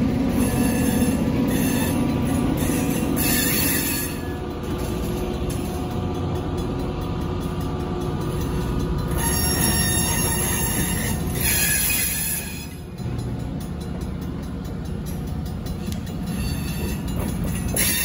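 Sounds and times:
train wheels rumbling on rails: 0.0 - 18.0
high-pitched wheel squeal: 0.3 - 4.4, 9.1 - 12.9, 15.8 - 18.0.

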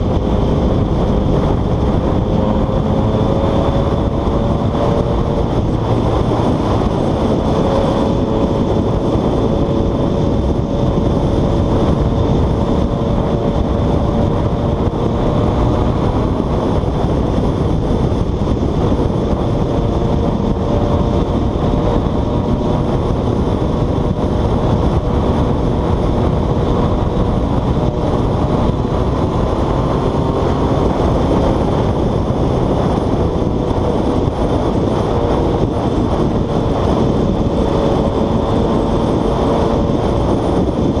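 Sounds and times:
motorcycle engine hum: 0.0 - 41.0
wind rush on microphone: 0.0 - 41.0.

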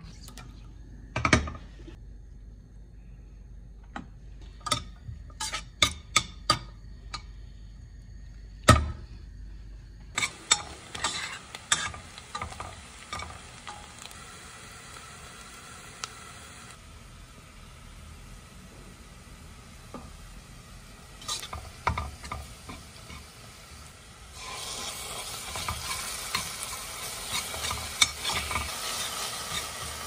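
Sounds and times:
onions sizzling in oil: 10.1 - 30.0.

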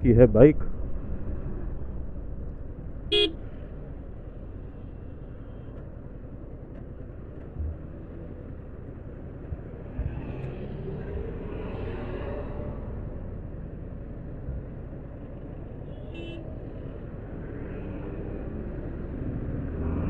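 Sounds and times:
motorcycle engine rumble: 0.0 - 9.9
road noise: 0.0 - 20.0
vehicle horn toot: 3.1 - 3.4, 15.9 - 16.4.

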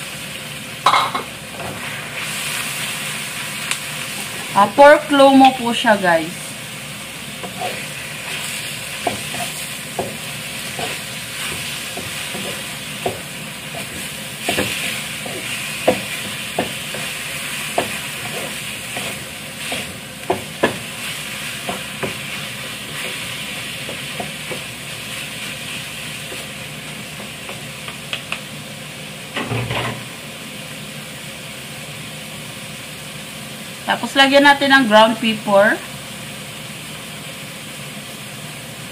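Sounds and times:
meat sizzling in oil: 0.0 - 38.9
spatula clatter: 0.8 - 1.3, 7.4 - 24.7
spatula scraping a pan: 7.4 - 26.5.

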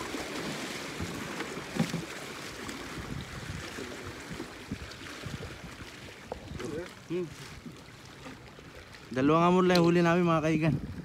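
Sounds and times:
sea waves washing against rocks: 0.0 - 7.6
wind on microphone: 2.5 - 7.8, 9.3 - 11.0.

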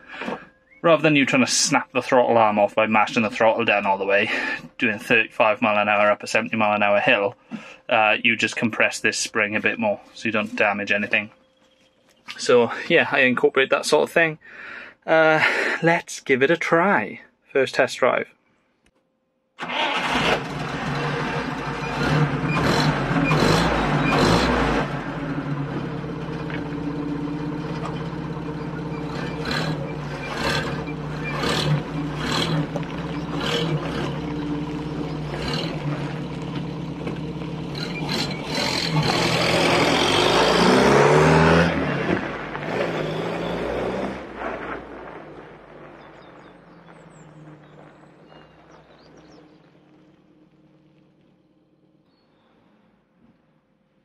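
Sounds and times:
van engine idling and revving: 0.0 - 7.2, 19.6 - 51.2.

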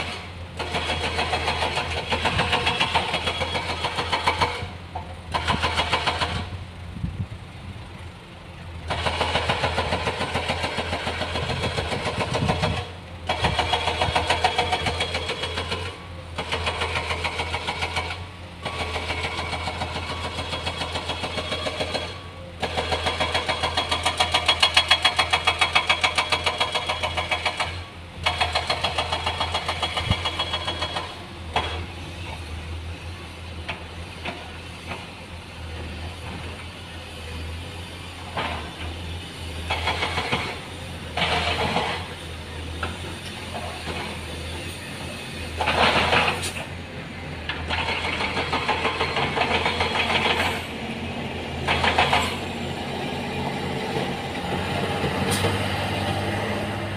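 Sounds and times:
diesel machinery pulsing: 0.0 - 56.9.

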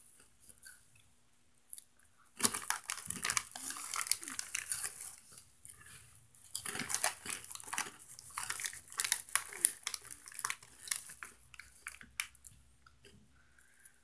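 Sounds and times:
chips crunching while eaten: 2.4 - 5.9, 6.5 - 12.5
snack bag crinkling: 2.4 - 5.9, 6.5 - 12.5.

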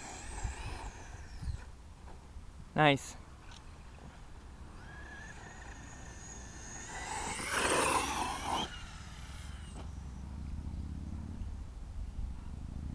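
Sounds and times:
rc truck motor whine: 0.0 - 1.7, 4.6 - 10.2
tyres rushing on dirt: 4.8 - 9.9.

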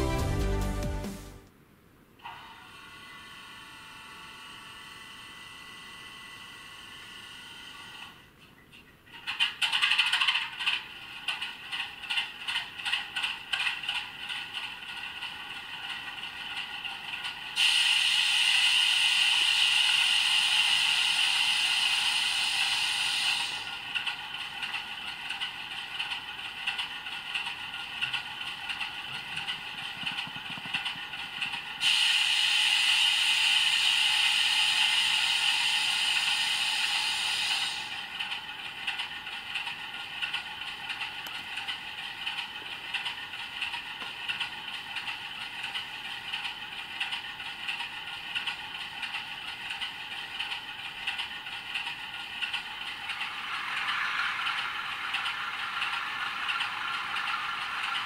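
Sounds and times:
hiss of released air: 17.6 - 23.7, 31.8 - 38.0
steady ticking: 23.9 - 31.8.

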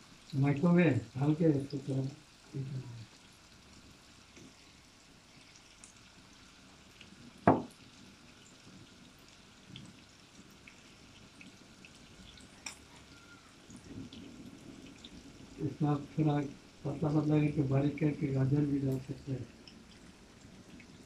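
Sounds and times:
meat sizzling in oil: 0.0 - 21.0
sharp knock: 7.5 - 7.7.

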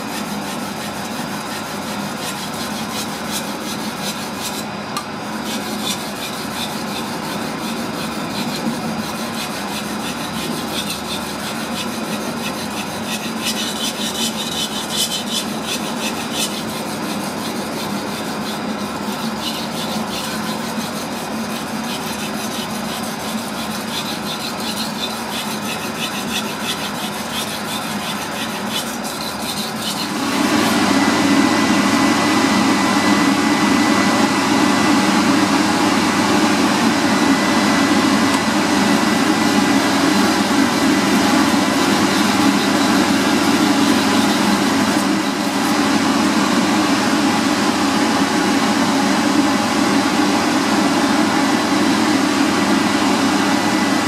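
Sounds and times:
knife scraping on whetstone: 0.0 - 30.8, 38.8 - 46.0.

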